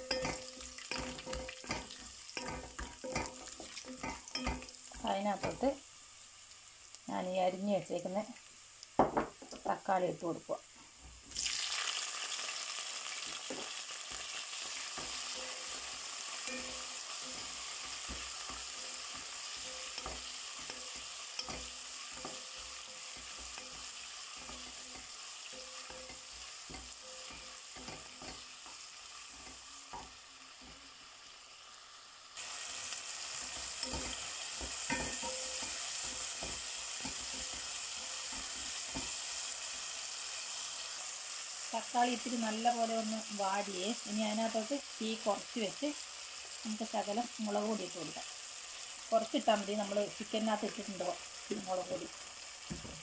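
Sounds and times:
spatula scraping a pan: 0.0 - 5.7, 13.4 - 30.8, 33.2 - 39.2
tomatoes sizzling in oil: 0.0 - 53.0.

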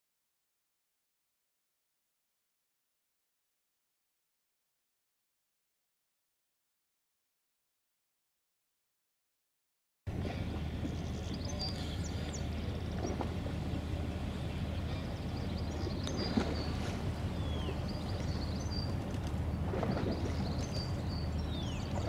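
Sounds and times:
low outdoor rumble: 10.1 - 22.0
small birds chirping: 10.3 - 22.0.

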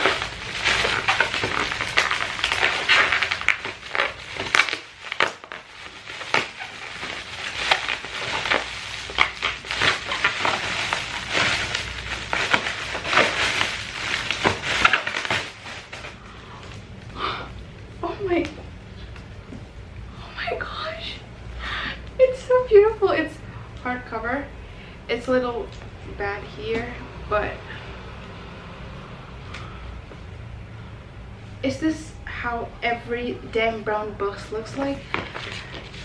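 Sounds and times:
bubble wrap crinkling and crackling: 0.0 - 18.6, 34.7 - 36.0.

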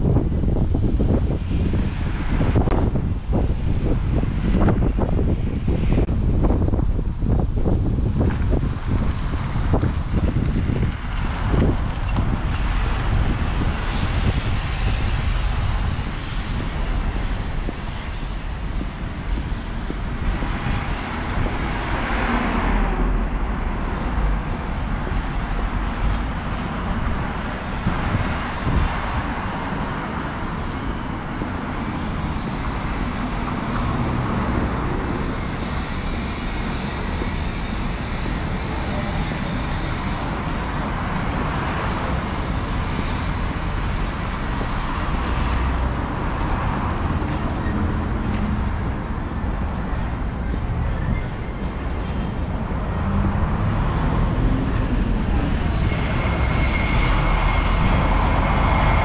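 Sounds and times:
street traffic: 0.0 - 59.0
vehicle passing: 52.6 - 59.0.

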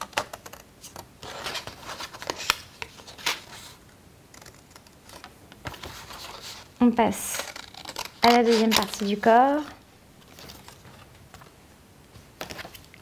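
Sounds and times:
paper rustling: 0.0 - 11.5
scissors snipping paper: 7.3 - 9.2.

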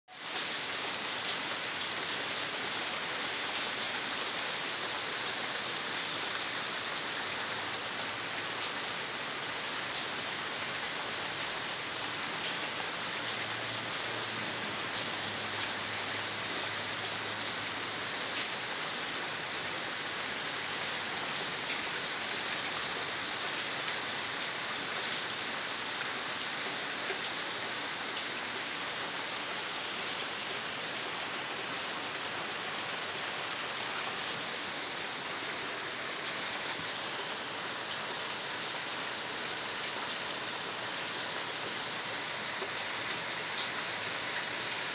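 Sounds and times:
rain on pond and wooden deck: 0.1 - 44.9.

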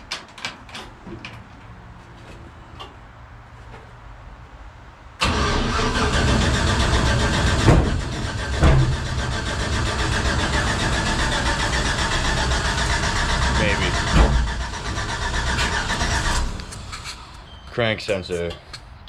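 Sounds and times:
race car engine running: 5.2 - 17.0.

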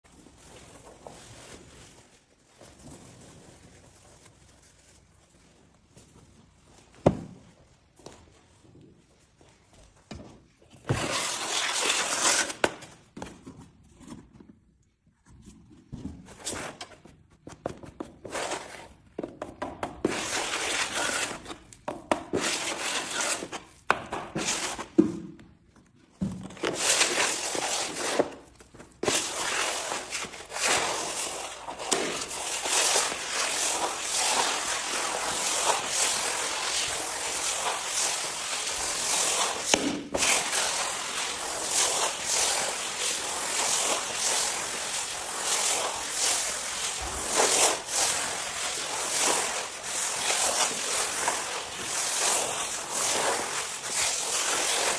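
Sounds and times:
spatula scraping filler on floor: 10.2 - 14.6, 15.3 - 25.5, 26.2 - 54.9.

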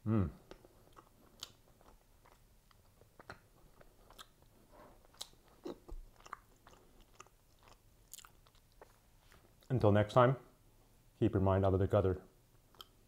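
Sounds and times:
person chewing quietly: 0.1 - 9.8, 12.5 - 13.0.

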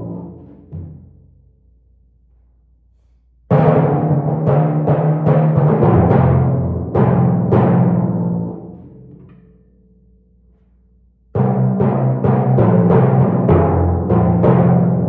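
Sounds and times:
timpani struck with mallets: 0.0 - 1.6, 3.5 - 9.6, 11.4 - 15.0.

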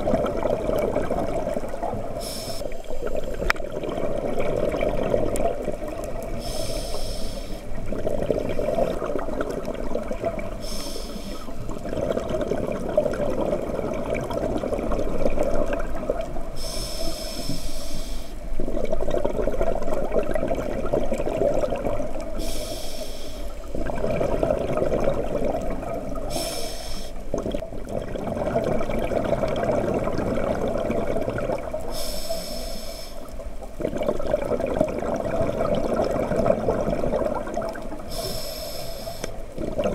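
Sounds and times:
exhaled bubbles: 0.0 - 22.8, 23.5 - 39.9
hissing regulator inhalations: 2.2 - 3.4, 6.3 - 7.8, 10.5 - 11.6, 16.6 - 18.5, 22.4 - 23.7, 26.2 - 27.3, 31.8 - 33.4, 38.0 - 39.5.

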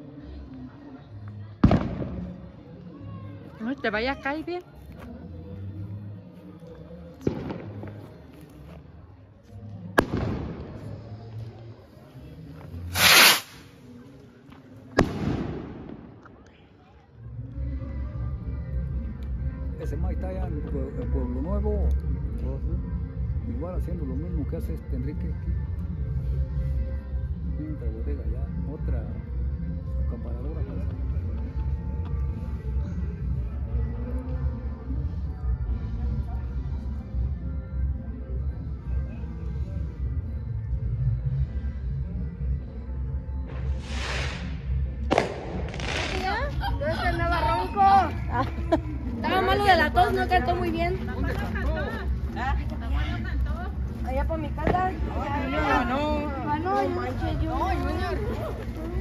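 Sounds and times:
firework bangs: 1.6 - 2.3, 10.0 - 11.0, 12.9 - 13.7, 15.0 - 16.1, 43.5 - 46.4
rocket hissing: 12.9 - 13.8, 43.5 - 46.4.

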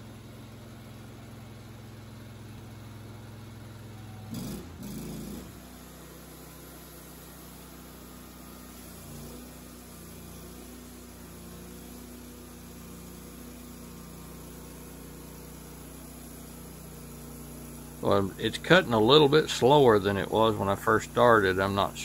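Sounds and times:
band sawmill engine humming: 16.2 - 22.0.

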